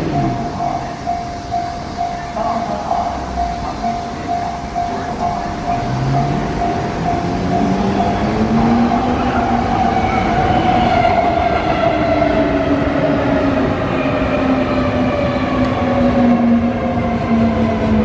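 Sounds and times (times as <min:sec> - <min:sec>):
level crossing bell ringing: 0:00.0 - 0:09.7
train cars rumbling: 0:00.0 - 0:18.0.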